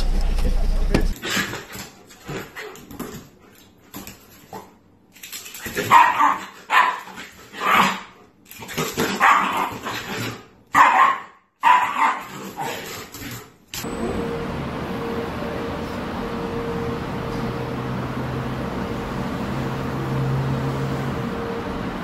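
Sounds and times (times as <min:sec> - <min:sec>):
dog barking: 0:05.9 - 0:08.1, 0:09.1 - 0:09.7, 0:10.7 - 0:12.3.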